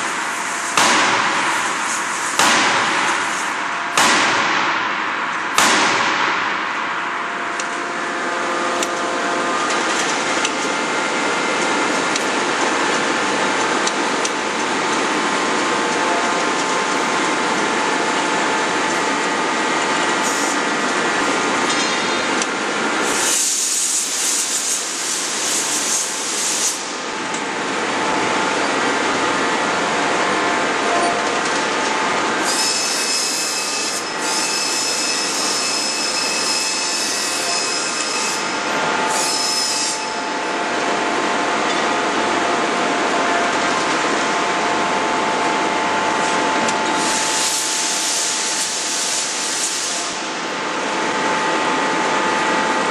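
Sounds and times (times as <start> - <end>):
forging machinery running: 0.0 - 24.0
high steady whine: 0.0 - 52.9
hiss: 23.0 - 26.9, 47.0 - 50.1.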